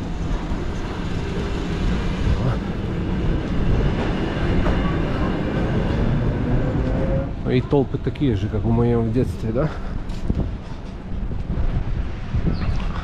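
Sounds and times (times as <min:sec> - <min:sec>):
electric train running: 0:00.0 - 0:08.0.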